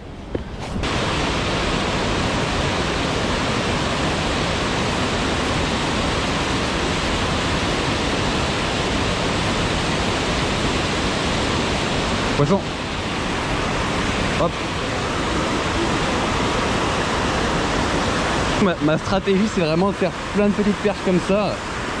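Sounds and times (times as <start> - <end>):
stream running over rocks: 0.4 - 22.0.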